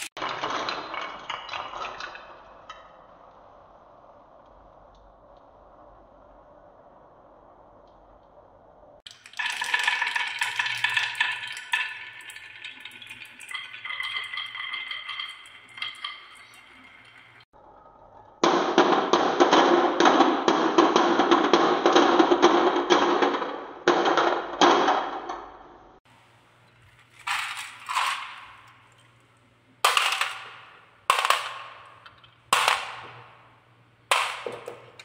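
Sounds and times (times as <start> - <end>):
glass marbles rolling on wooden track: 0.0 - 3.0, 9.1 - 17.4, 29.8 - 33.4
marbles dropping into toy truck: 29.8 - 33.4.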